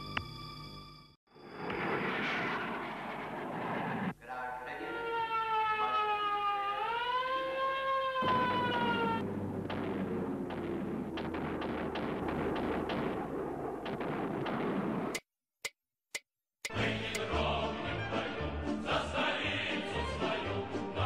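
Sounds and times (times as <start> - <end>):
air-raid siren wailing: 4.7 - 9.6
sharp cracks like gunfire: 9.5 - 15.2.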